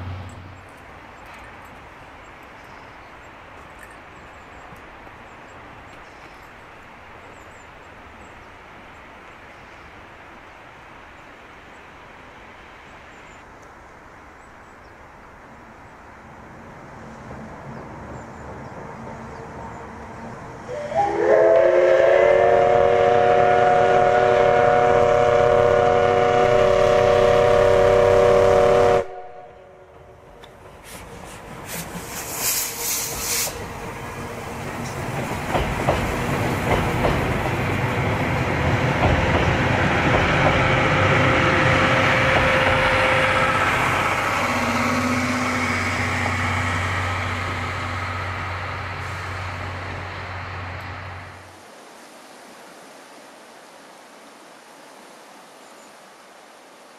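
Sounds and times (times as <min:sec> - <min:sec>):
steam locomotive whistle: 0:20.7 - 0:29.9, 0:31.7 - 0:33.7, 0:40.6 - 0:48.4
train wheels clattering on bridge: 0:29.9 - 0:45.0
steam hissing bursts: 0:30.7 - 0:50.7.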